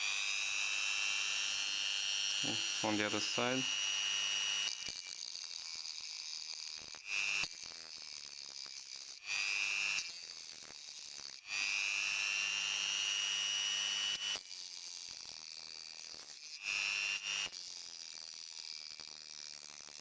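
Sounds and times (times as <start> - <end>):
cutting disc grinding metal: 0.0 - 20.0
rotary tool whine: 0.0 - 20.0.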